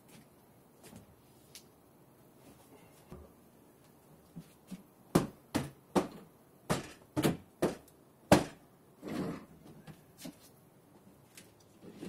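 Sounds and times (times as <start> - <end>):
sharp knocks: 5.1 - 8.6.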